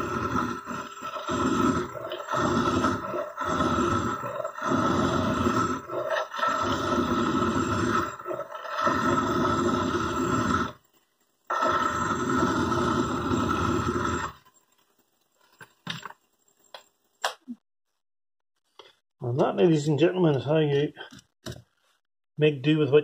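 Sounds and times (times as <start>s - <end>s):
file grinding on spinning nut: 0.0s - 10.8s, 11.5s - 14.5s.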